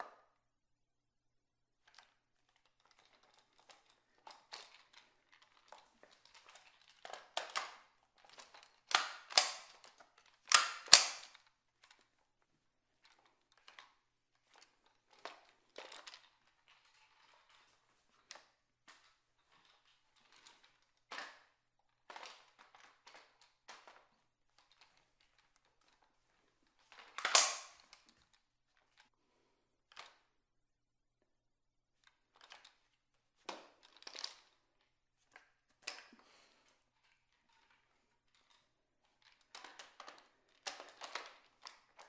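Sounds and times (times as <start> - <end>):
rifle action metallic clicks: 8.9 - 9.7, 10.5 - 11.3, 27.2 - 27.8.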